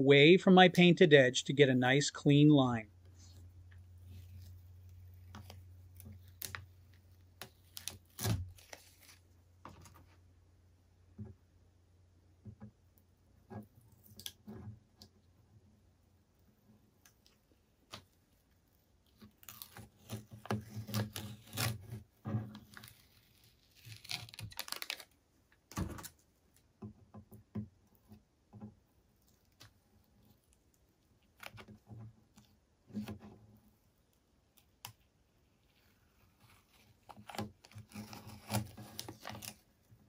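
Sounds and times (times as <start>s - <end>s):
masking tape peeling: 4.0s - 9.2s, 19.0s - 25.2s, 31.2s - 33.2s, 35.6s - 39.8s.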